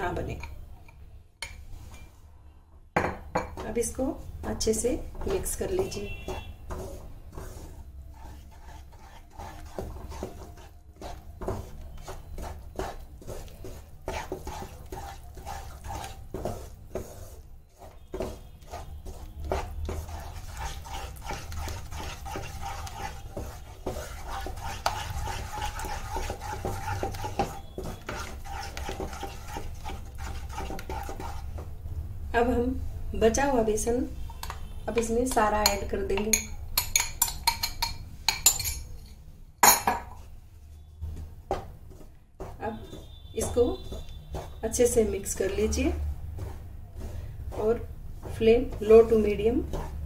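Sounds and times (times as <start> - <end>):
wooden spatula scraping pan: 3.6 - 31.7, 40.2 - 50.0.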